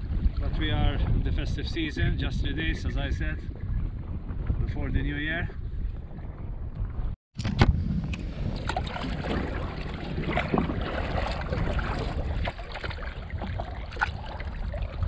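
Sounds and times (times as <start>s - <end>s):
wind rumble on microphone: 0.0s - 15.0s
water splashing and lapping: 7.4s - 15.0s
paddle stroke splashes: 8.1s - 15.0s.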